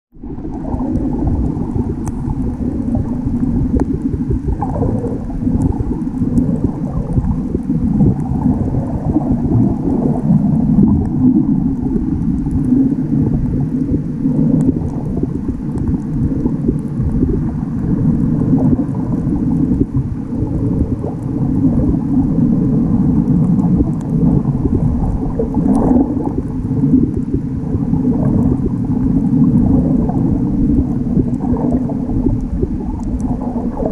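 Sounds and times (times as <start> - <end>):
underwater rumble and gurgle: 0.1 - 33.9
faint clicks: 0.5 - 17.9, 23.2 - 27.4, 31.2 - 33.9.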